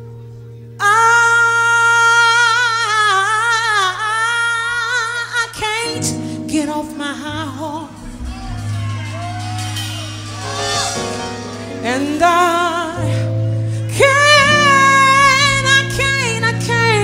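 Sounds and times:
woman singing soul vocal: 0:00.8 - 0:08.2, 0:11.7 - 0:17.0
live band sustained chords: 0:06.0 - 0:17.0.

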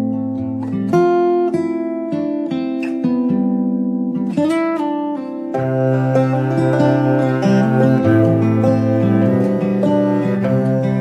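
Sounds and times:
instrumental music with plucked notes: 0:00.0 - 0:11.0.

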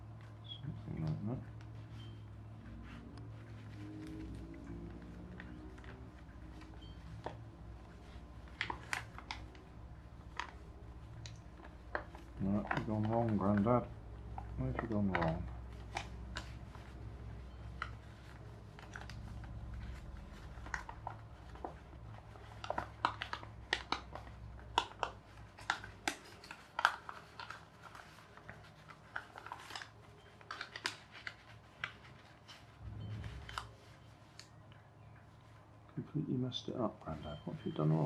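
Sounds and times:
paper crinkling and rustling: 0:00.0 - 0:35.9
low rumble: 0:32.8 - 0:33.7.

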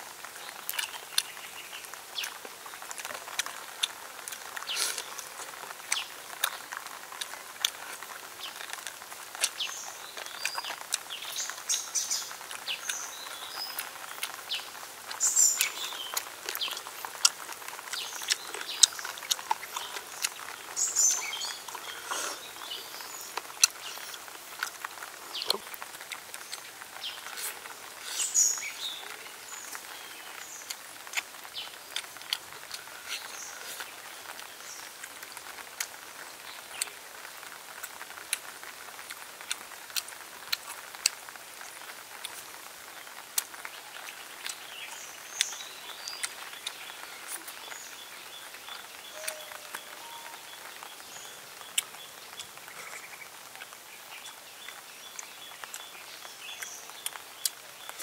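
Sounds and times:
wet lip smacks and chewing: 0:15.1 - 0:26.6, 0:30.7 - 0:34.4, 0:43.4 - 0:44.6, 0:46.2 - 0:47.6
faint bird chirps: 0:44.6 - 0:53.3.

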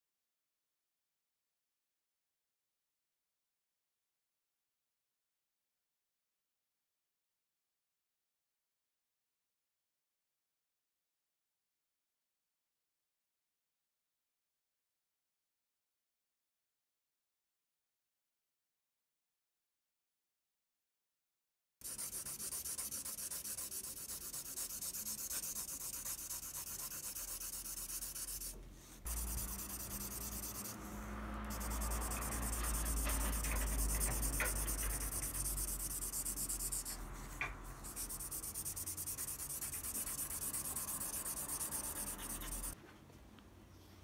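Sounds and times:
pad rubbing on paper: 0:21.8 - 0:42.8.

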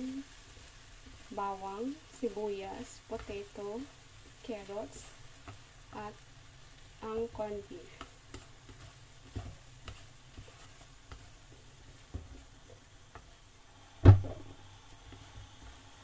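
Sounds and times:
faint sizzle: 0:00.0 - 0:16.0
chopsticks scraping a frying pan: 0:07.9 - 0:13.4.

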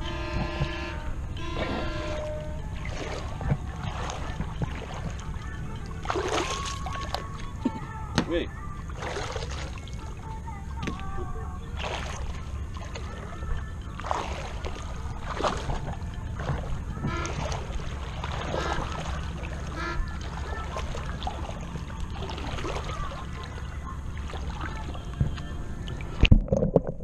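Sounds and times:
steady low rumble: 0:00.0 - 0:27.0
water sloshing: 0:00.0 - 0:27.0.

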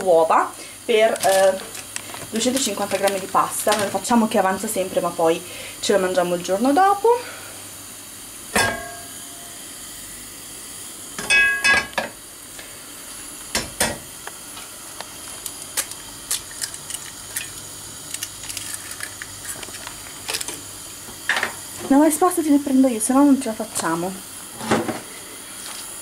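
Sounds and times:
egg crackling in oil: 0:00.6 - 0:04.7, 0:13.0 - 0:21.8.

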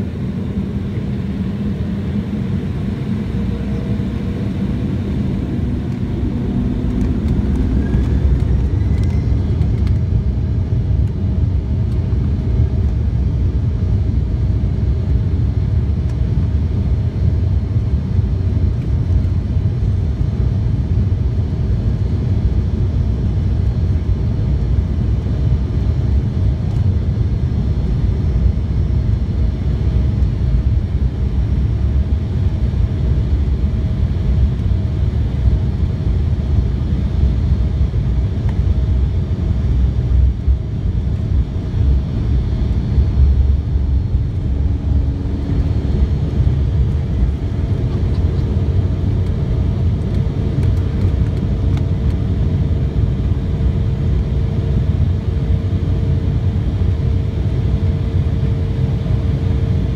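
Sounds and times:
steady engine tone: 0:00.0 - 0:18.7, 0:27.2 - 0:59.9
jet engines rumbling: 0:00.0 - 0:59.9.

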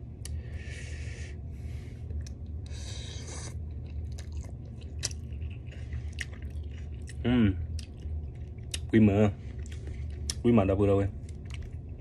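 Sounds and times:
steady low hum: 0:00.0 - 0:12.0
chewing with wet clicks: 0:02.1 - 0:02.8, 0:03.5 - 0:10.6, 0:11.2 - 0:12.0.

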